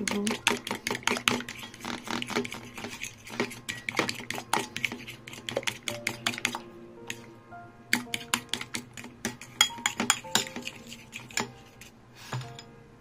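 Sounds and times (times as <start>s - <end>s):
fork clicking against ceramic bowl: 7.9s - 11.6s.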